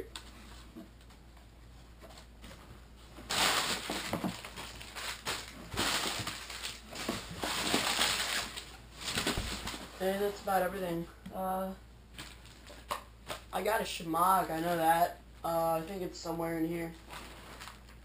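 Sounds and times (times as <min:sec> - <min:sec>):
packing paper rustling: 0:03.2 - 0:10.3, 0:12.1 - 0:13.5, 0:17.0 - 0:18.0.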